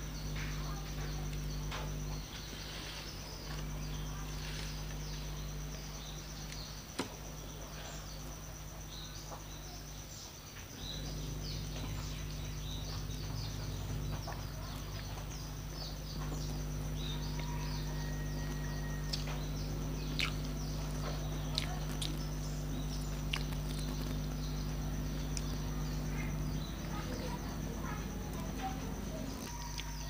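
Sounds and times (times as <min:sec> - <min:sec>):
small birds chirping: 0:00.0 - 0:30.0
steady low hum: 0:00.0 - 0:30.0
high whine: 0:10.7 - 0:30.0.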